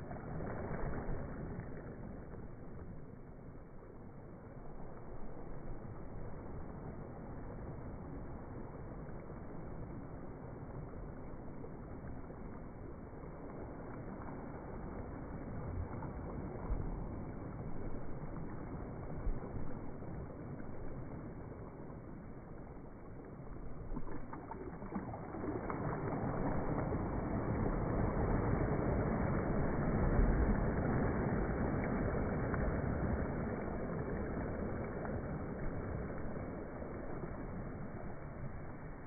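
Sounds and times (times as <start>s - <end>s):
wave breaking on beach: 0.0s - 23.1s, 23.8s - 39.0s
small waves lapping on shore: 0.0s - 39.0s.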